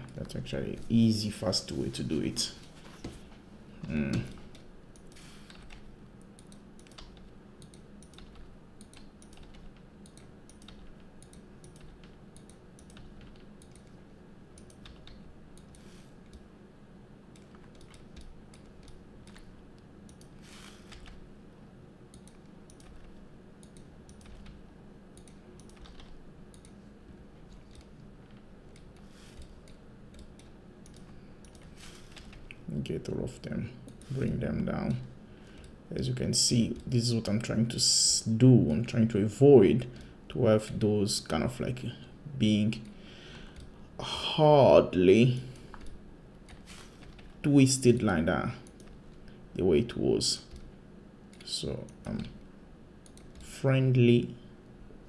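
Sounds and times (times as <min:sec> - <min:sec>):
faint steady hum: 0:00.0 - 0:55.0
keyboard and mouse clicking: 0:04.3 - 0:14.0, 0:14.6 - 0:16.5, 0:17.3 - 0:19.5, 0:22.1 - 0:24.6, 0:25.2 - 0:26.8, 0:27.5 - 0:32.6, 0:48.6 - 0:49.0.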